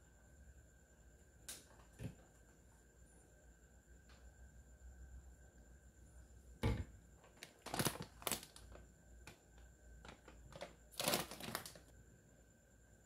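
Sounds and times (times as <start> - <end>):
plastic packaging crinkling: 7.2 - 11.9.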